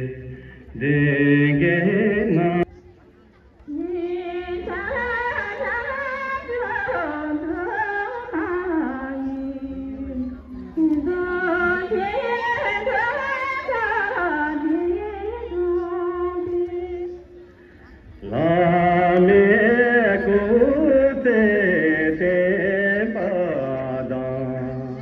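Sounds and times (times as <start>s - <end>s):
person singing ornamented melody: 3.7s - 17.3s.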